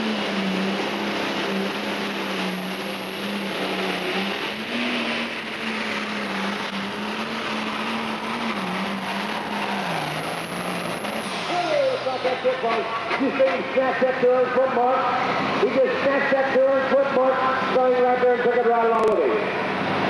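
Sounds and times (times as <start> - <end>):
exhaust and turbo rush: 0.0 - 20.0
tractor engine running flat out: 0.0 - 20.0.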